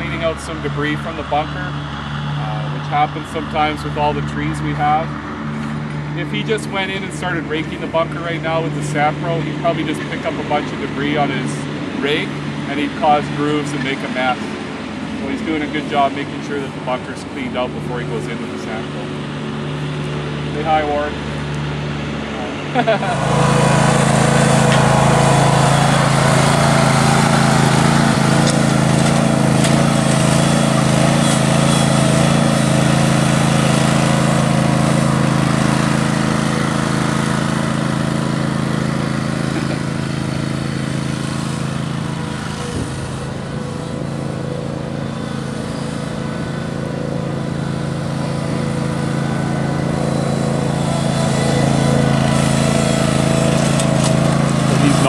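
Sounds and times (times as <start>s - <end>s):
small machine engine running: 22.7s - 55.0s
rake dragging through sand: 22.8s - 36.4s, 50.0s - 55.0s.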